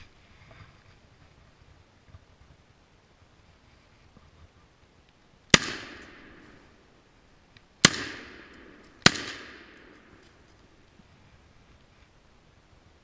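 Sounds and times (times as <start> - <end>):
gunshots with echo: 5.5 - 6.6, 7.8 - 10.2.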